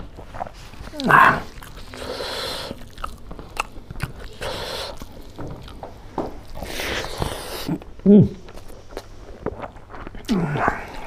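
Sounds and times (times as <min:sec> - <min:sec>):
fingers mixing food: 0:00.2 - 0:07.9.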